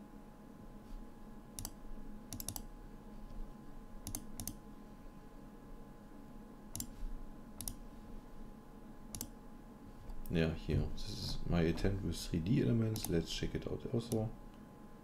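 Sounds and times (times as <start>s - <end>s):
faint electrical hum: 0.0s - 15.0s
computer mouse clicks: 1.6s - 2.7s, 4.0s - 4.6s, 6.7s - 7.0s, 7.6s - 7.8s, 9.1s - 9.4s, 12.9s - 13.2s.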